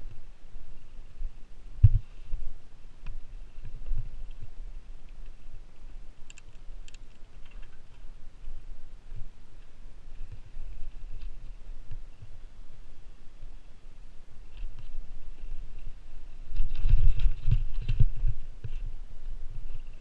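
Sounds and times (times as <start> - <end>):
sharp clicks: 6.2 - 7.8.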